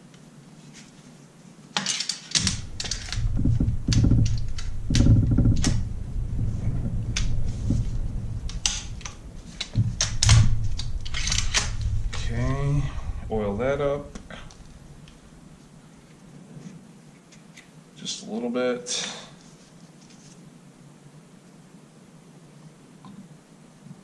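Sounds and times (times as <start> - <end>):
metallic clicks and knocks: 1.8 - 15.2
dull handling thuds: 2.4 - 15.3.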